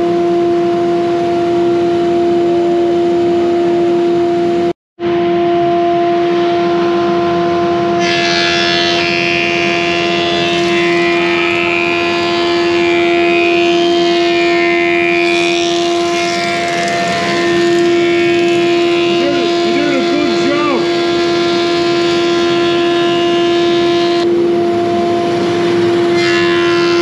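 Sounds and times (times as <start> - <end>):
planer humming: 8.0 - 23.3
cutter head cutting wood: 8.0 - 23.9.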